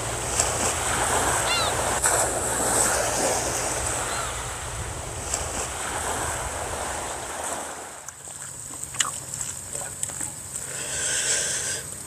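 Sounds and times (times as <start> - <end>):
wind rumble on microphone: 0.0 - 10.6
sea waves lapping on rocks: 0.0 - 12.0.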